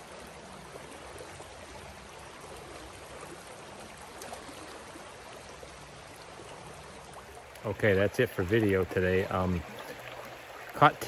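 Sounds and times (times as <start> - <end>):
creek running over rocks: 0.0 - 11.0.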